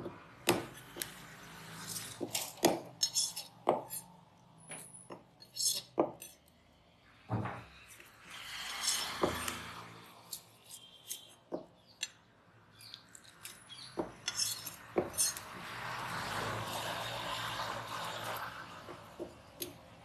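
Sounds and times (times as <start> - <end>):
knife scraping fish: 0.6 - 4.2, 5.4 - 6.4, 8.0 - 11.4, 12.8 - 19.8.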